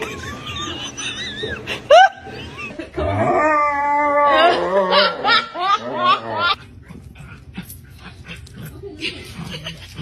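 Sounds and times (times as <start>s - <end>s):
dog howling and whining: 3.0s - 6.6s.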